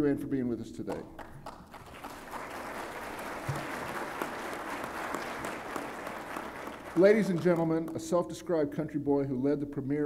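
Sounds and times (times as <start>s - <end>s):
audience applauding: 1.2s - 8.0s.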